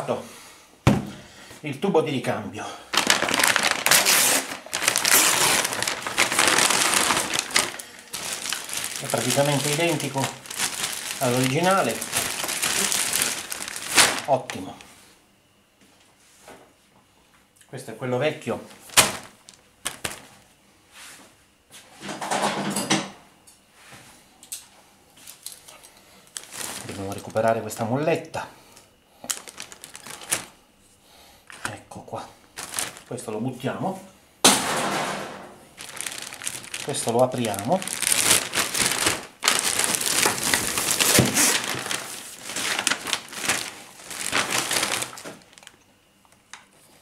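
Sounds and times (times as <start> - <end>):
plastic bag and paper rustling: 2.9 - 15.0, 18.6 - 20.5, 25.2 - 28.1, 29.2 - 30.6, 32.4 - 33.9, 35.8 - 45.8.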